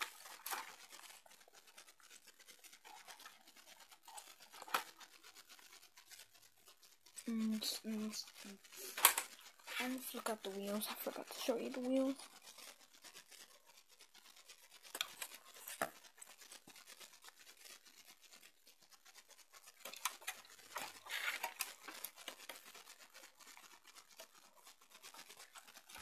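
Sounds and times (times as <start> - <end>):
recording device handling noise: 0.0 - 2.1, 2.7 - 5.2, 7.1 - 13.4, 14.8 - 17.4, 19.6 - 26.0.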